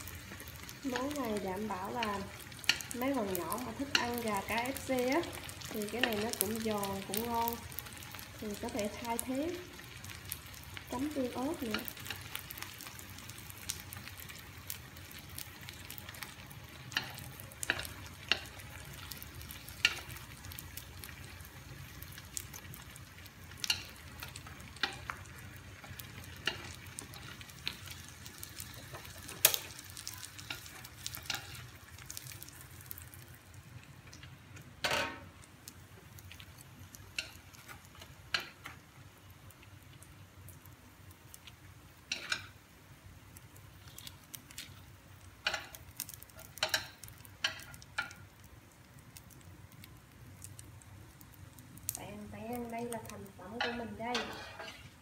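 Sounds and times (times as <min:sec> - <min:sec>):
oil sizzling in a wok: 0:00.0 - 0:55.0
chopsticks tapping a pan: 0:00.9 - 0:07.3, 0:16.9 - 0:18.7, 0:19.8 - 0:20.2, 0:23.6 - 0:27.8, 0:42.1 - 0:42.5, 0:45.4 - 0:45.8, 0:46.4 - 0:48.2, 0:52.8 - 0:54.8.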